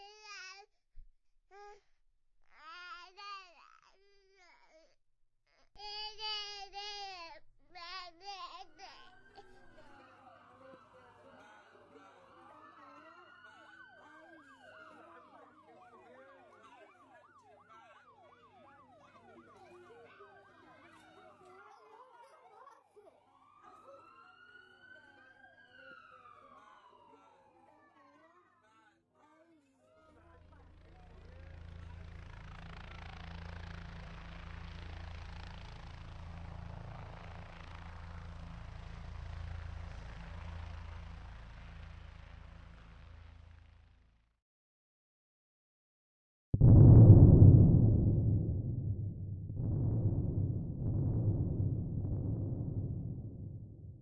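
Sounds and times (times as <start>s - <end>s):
siren yelping: 9.1s - 21.4s, 23.3s - 27.6s
sirens wailing: 9.1s - 22.0s, 23.2s - 27.9s
low mechanical drone: 30.5s - 44.2s, 46.6s - 54.0s.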